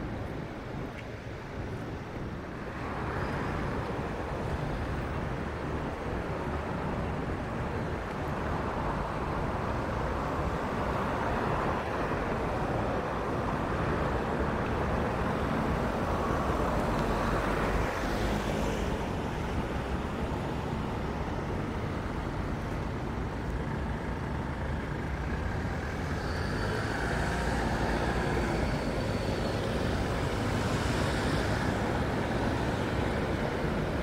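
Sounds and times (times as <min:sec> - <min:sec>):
cars driving past: 0:24.6 - 0:34.0.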